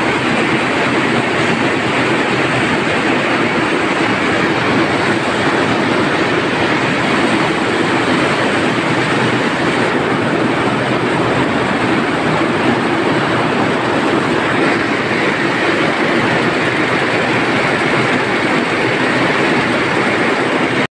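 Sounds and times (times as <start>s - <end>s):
weaving looms running: 0.0s - 20.9s.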